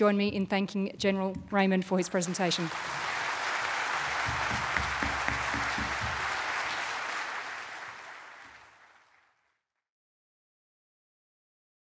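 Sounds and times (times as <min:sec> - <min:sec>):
audience applauding: 0:02.0 - 0:09.5.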